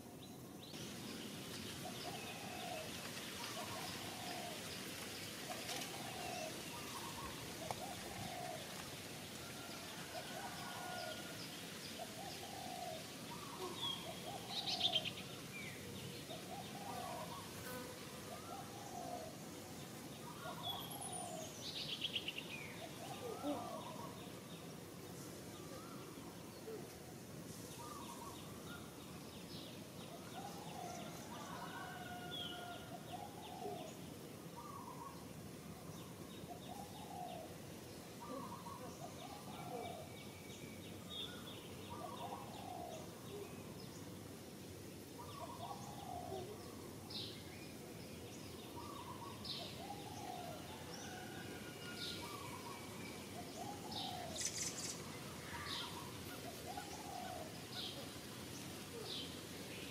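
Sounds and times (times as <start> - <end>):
insects hissing: 0.1 - 29.2, 51.1 - 59.9.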